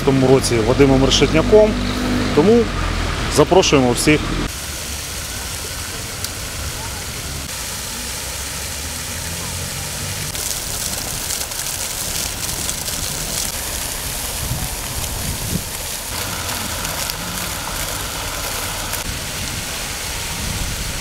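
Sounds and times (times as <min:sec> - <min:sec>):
fountain water splashing: 0:04.4 - 0:21.0.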